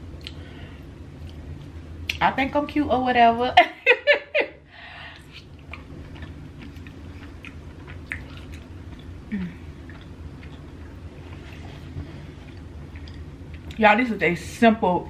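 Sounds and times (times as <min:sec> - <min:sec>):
falling hum: 0:00.0 - 0:15.0
person chewing: 0:00.2 - 0:00.4, 0:05.2 - 0:13.8
person laughing: 0:03.6 - 0:04.6.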